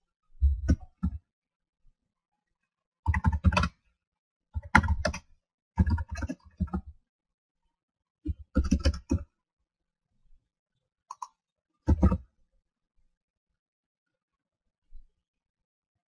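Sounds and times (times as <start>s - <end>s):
keyboard typing: 3.1s - 3.8s, 4.6s - 5.2s, 5.8s - 6.8s, 8.3s - 9.2s, 11.1s - 12.2s.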